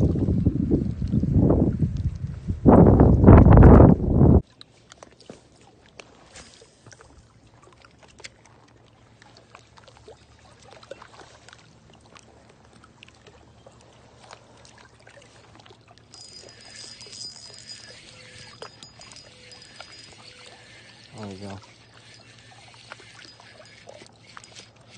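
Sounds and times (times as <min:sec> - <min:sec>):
small waves lapping: 0:04.4 - 0:24.9
thin high whine: 0:16.2 - 0:24.9.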